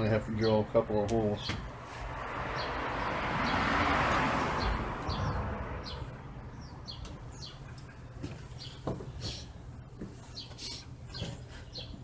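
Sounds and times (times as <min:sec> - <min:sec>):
vehicle passing: 0:01.5 - 0:08.7
high bird chirps: 0:04.6 - 0:12.0.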